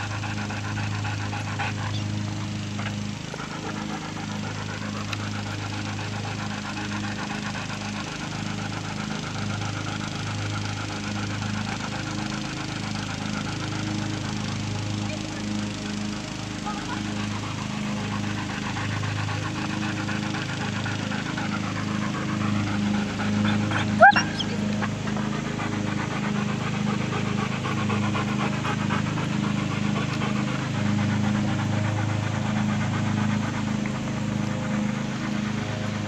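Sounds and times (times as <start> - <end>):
dog panting: 0.0 - 36.0
steady low hum: 0.0 - 36.0
dog whining: 23.3 - 25.2.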